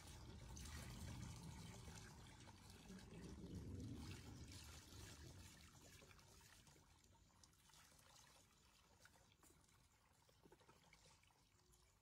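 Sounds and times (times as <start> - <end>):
water pouring and trickling: 0.0 - 12.0.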